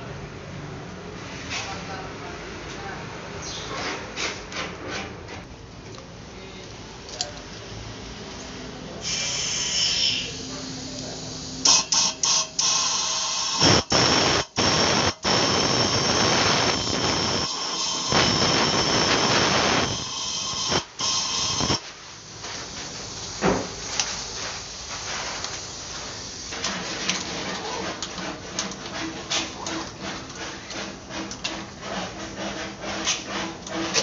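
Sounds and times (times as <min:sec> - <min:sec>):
compressed air blow gun hissing: 0:09.0 - 0:21.8.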